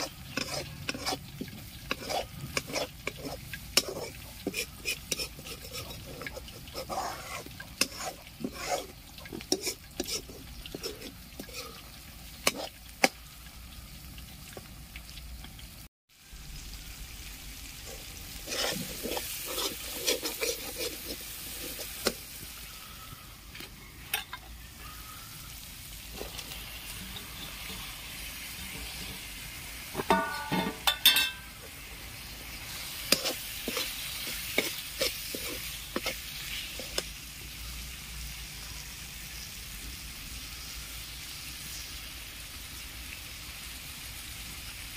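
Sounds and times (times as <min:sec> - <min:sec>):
metal ladle scraping and knocking pan: 0:00.0 - 0:11.6, 0:30.0 - 0:31.7, 0:33.1 - 0:37.1
spices sizzling in a pan: 0:00.0 - 0:44.9.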